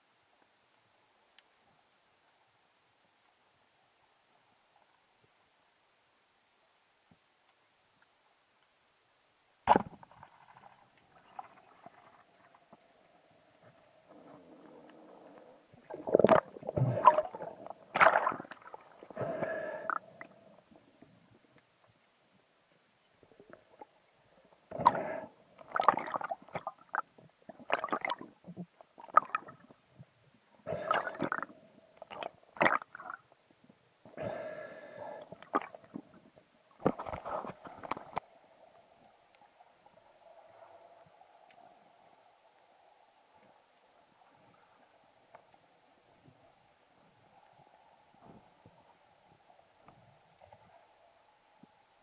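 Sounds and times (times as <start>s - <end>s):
faint steady hum: 0.0s - 52.0s
water sloshing and gurgling: 9.7s - 21.3s, 23.2s - 33.4s, 34.0s - 41.7s.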